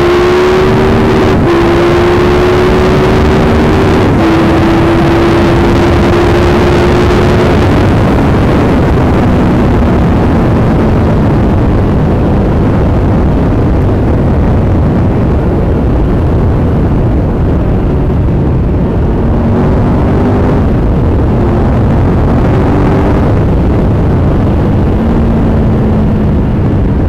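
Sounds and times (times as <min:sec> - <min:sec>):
wind rush on microphone: 0:00.0 - 0:27.0.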